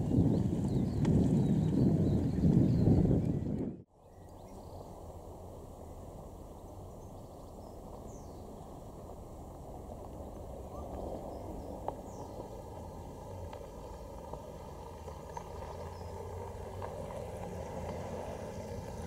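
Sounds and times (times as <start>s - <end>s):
faint bird chirps: 4.0s - 5.0s.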